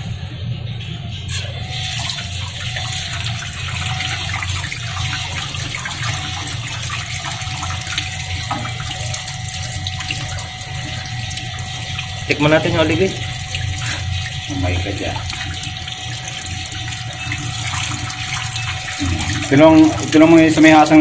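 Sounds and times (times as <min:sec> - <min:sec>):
steady low hum: 0:00.0 - 0:21.0
tap water running and splashing: 0:01.3 - 0:21.0.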